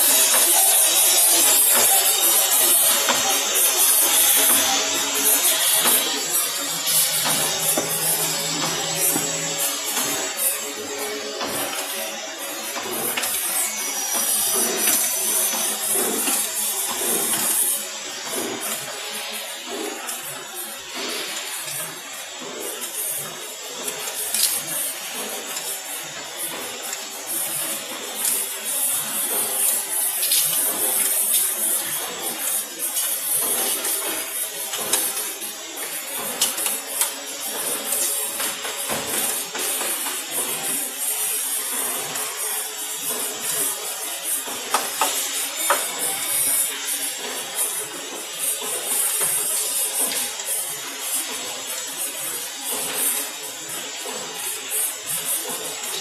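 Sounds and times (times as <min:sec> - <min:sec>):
thin high whine: 0:00.0 - 0:23.0
machine hissing: 0:00.0 - 0:56.0.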